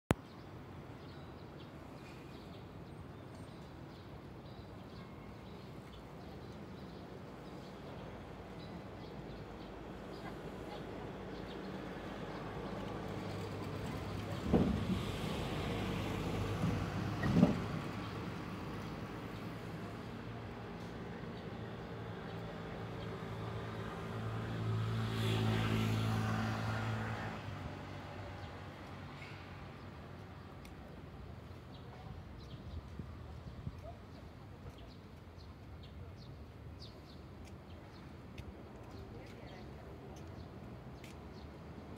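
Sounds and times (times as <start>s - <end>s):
vehicle passing by: 10.2s - 30.1s
small birds chirping: 28.2s - 41.7s.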